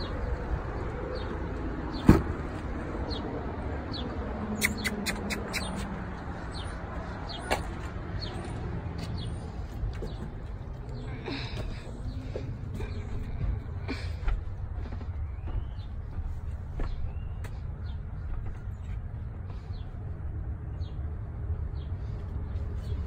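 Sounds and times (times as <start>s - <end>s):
outdoor rumble: 0.0s - 23.0s
bird chirps: 4.5s - 5.9s.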